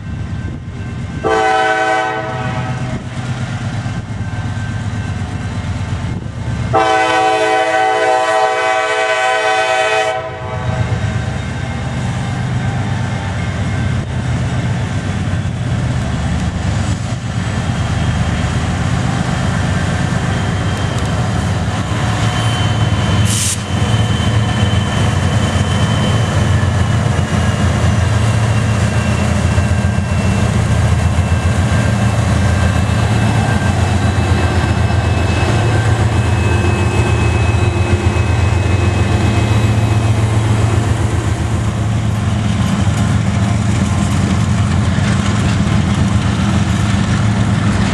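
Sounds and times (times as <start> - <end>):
diesel locomotive engine drone: 0.0 - 47.9
brief high hiss: 23.2 - 23.7.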